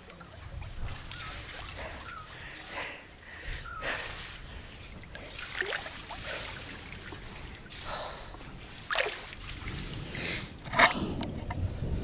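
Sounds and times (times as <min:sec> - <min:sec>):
pool water sloshing and splashing: 0:00.0 - 0:03.1, 0:03.8 - 0:10.1.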